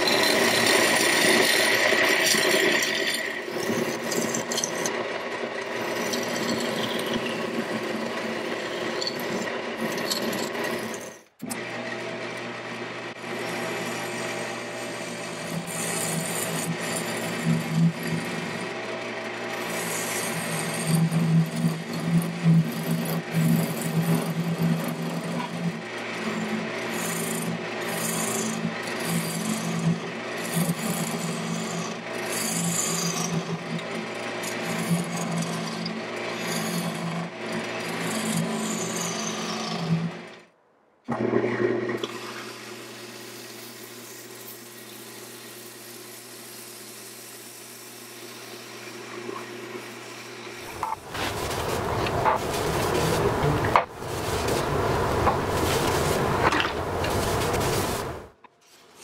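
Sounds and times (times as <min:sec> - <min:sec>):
gouge scraping spinning wood: 0:00.0 - 0:12.3, 0:13.1 - 0:40.4, 0:43.4 - 0:59.0
lathe motor humming: 0:11.5 - 0:40.4, 0:49.8 - 0:58.4.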